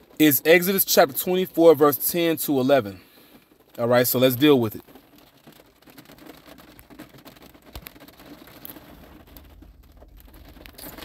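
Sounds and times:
background hiss: 0.0s - 4.9s.

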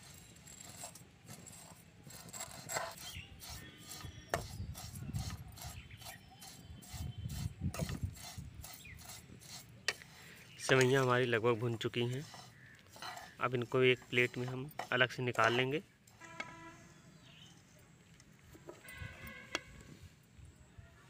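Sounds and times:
spoon scraping noodles in a pan: 0.0s - 16.4s.

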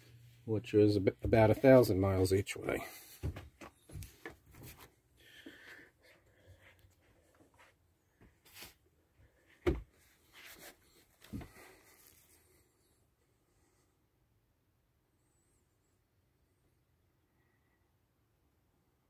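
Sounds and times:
dull thumps: 3.1s - 4.8s, 9.6s - 10.0s.

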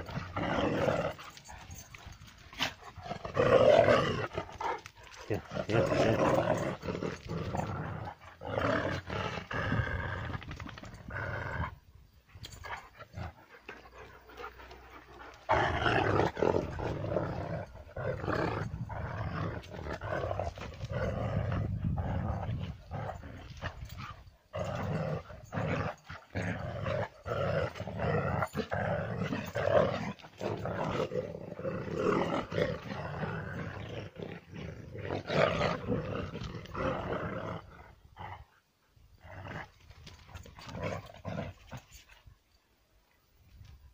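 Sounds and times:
dogs growling: 0.0s - 11.8s, 12.4s - 38.6s, 39.2s - 42.2s.

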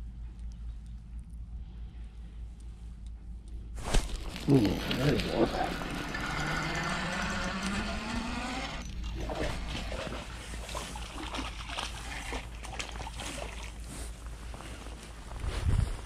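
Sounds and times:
fish splashing in water: 3.8s - 13.9s.

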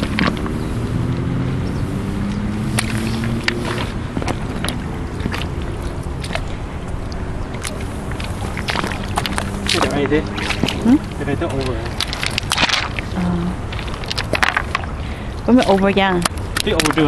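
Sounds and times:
stones clicking underfoot: 0.0s - 0.6s, 2.7s - 15.0s
footsteps wading in shallow water: 0.0s - 17.0s
low hum: 0.0s - 17.0s.

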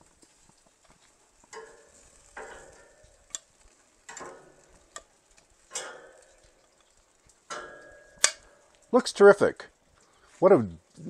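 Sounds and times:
metal tongs clinking on grill grate: 1.4s - 9.2s.

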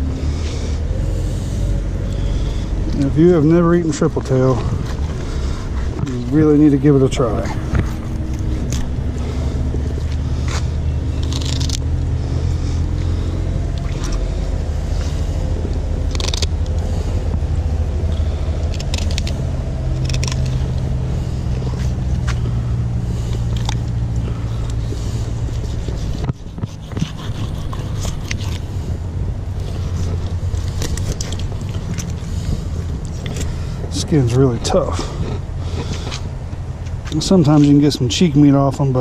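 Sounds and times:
engine drone: 0.0s - 39.0s
knife scraping while filleting fish: 25.4s - 28.8s.

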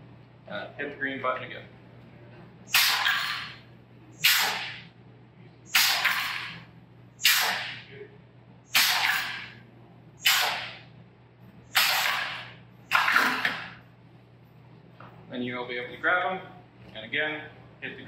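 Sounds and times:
pneumatic air hiss bursts: 2.7s - 3.6s, 4.2s - 4.8s, 5.7s - 6.6s, 7.2s - 7.8s, 8.7s - 9.6s, 10.2s - 10.8s, 11.7s - 13.7s.

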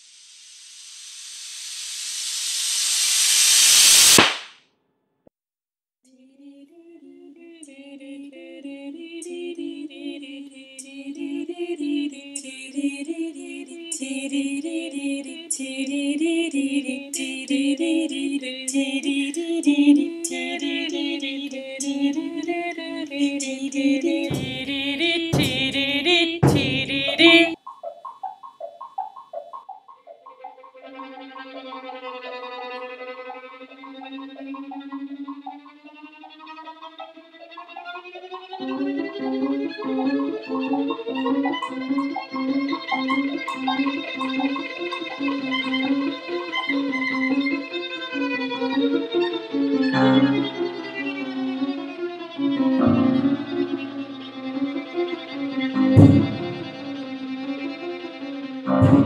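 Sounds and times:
hissing noise swell: 0.0s - 4.3s
high ticking: 24.0s - 38.1s, 38.8s - 47.6s
low thumps: 24.3s - 27.6s, 56.0s - 56.9s, 58.7s - 59.0s
wavering hummed tone: 27.6s - 32.6s, 33.3s - 35.8s.

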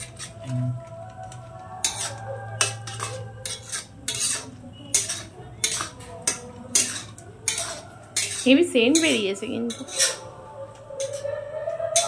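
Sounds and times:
metal spatula scraping metal pan: 0.0s - 0.6s, 1.8s - 10.3s, 11.0s - 11.3s
spatula clinking against pan: 1.8s - 10.2s, 11.0s - 11.3s.

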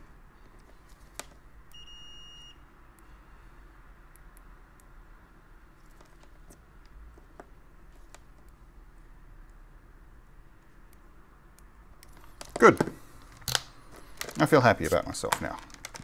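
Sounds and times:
multimeter beep: 1.7s - 2.6s.

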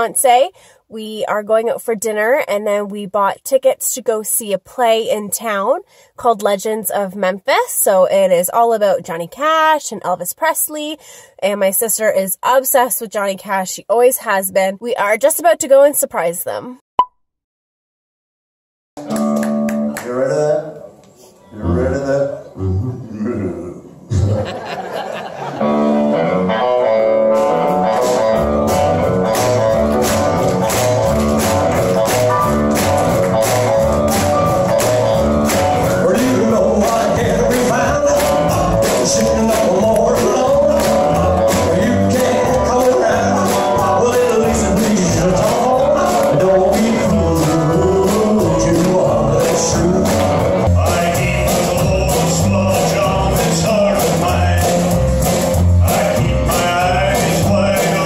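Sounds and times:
live rock band playing: 19.0s - 20.0s, 24.8s - 58.0s
man singing: 35.8s - 58.0s.

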